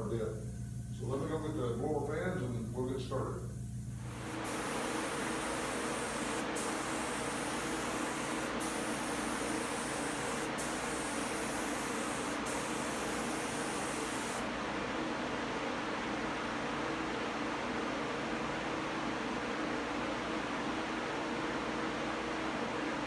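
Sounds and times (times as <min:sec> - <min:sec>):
steady fan hum: 0:00.0 - 0:23.0
spray gun hissing: 0:04.0 - 0:14.5.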